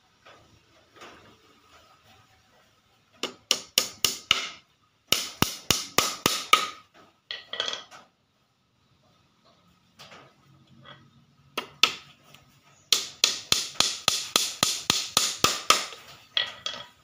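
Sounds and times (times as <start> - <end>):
hammer tapping nail into wood: 3.2 - 6.8, 12.9 - 16.0.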